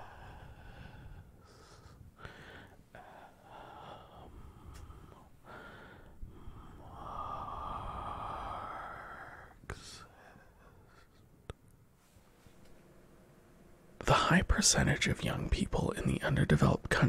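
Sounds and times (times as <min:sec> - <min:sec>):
breathing into microphone: 0:00.0 - 0:11.1.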